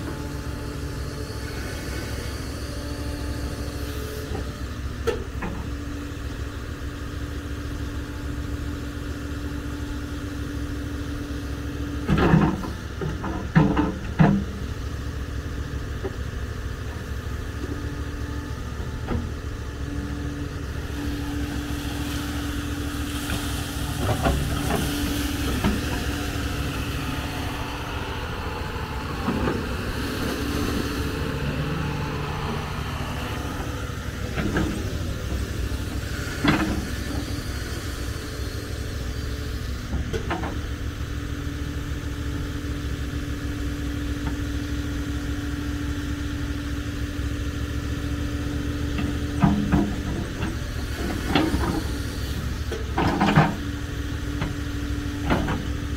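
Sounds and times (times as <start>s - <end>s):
diesel excavator engine running: 0.0s - 55.9s
held hum: 17.6s - 37.8s.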